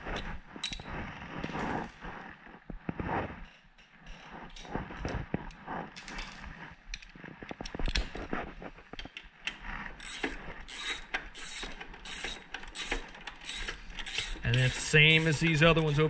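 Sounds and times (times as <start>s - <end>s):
socket ratchet clicking: 10.0s - 16.0s.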